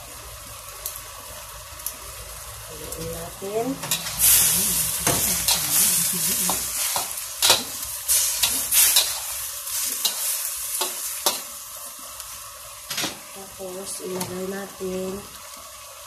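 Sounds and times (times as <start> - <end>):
food sizzling in a wok: 0.0 - 16.0
metal utensil scraping a pan: 3.8 - 11.5.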